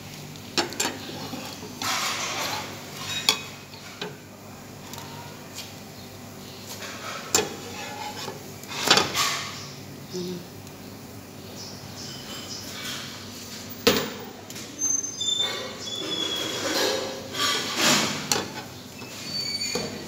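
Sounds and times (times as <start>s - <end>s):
fork scraping frying pan: 0.7s - 4.2s, 6.8s - 9.5s, 15.6s - 19.4s.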